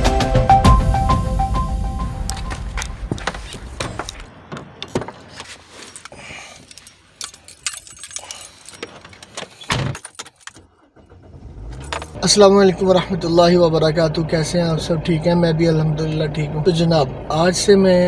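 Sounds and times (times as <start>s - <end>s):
music: 0.0s - 3.1s.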